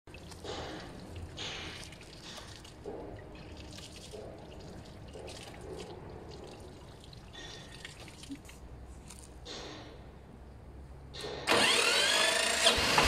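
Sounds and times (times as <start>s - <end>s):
water trickling and splashing: 0.1s - 9.2s.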